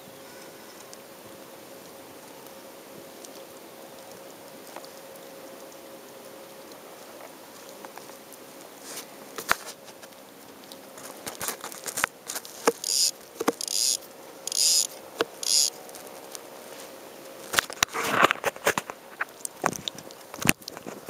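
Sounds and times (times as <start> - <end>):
rod and reel handling clicks: 10.7 - 15.8
spinning reel whirring rattle: 12.6 - 15.7.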